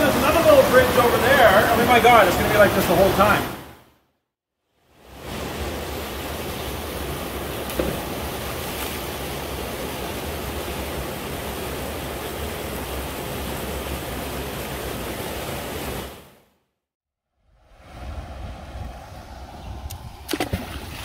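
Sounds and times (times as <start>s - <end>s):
creek water rushing: 0.0s - 3.8s, 4.9s - 16.4s.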